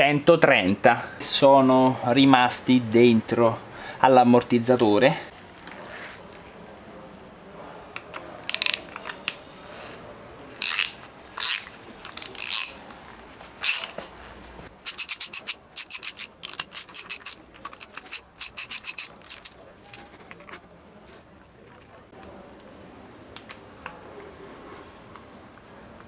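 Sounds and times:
ratchet wrench clicking: 8.5 - 9.0, 10.6 - 12.8, 13.6 - 13.9, 14.8 - 19.6.

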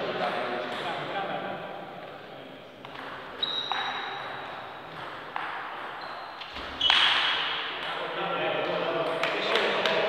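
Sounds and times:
table tennis ball hits: 2.8 - 8.0.

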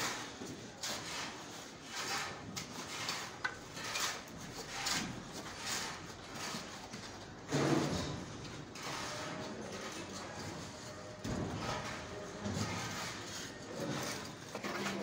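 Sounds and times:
spirit level scraping on stone: 0.9 - 6.7.

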